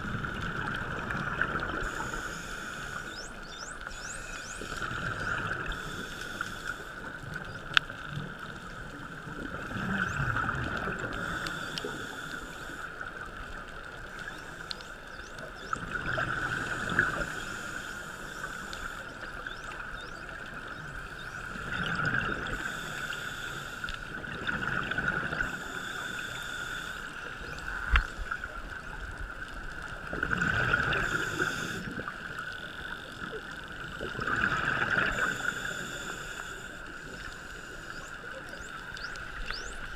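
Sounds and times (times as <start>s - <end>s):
diver's regulator breathing: 1.6s - 7.2s, 10.9s - 13.2s, 16.3s - 19.4s, 22.4s - 24.3s, 25.0s - 28.0s, 30.6s - 33.0s, 34.5s - 39.8s
steady hiss: 1.7s - 9.0s, 11.0s - 15.7s, 16.3s - 19.5s, 22.4s - 24.3s, 25.3s - 28.6s, 30.8s - 33.0s, 35.0s - 39.9s
exhaled bubbles: 9.4s - 11.3s, 30.1s - 32.3s, 34.0s - 35.5s.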